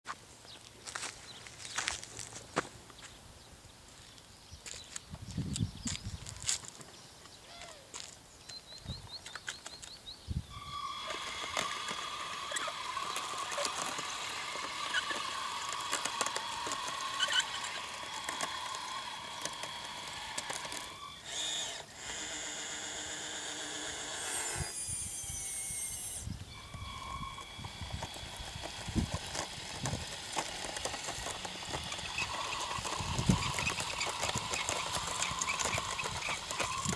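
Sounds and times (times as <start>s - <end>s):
electric motors whining: 10.5s - 36.9s.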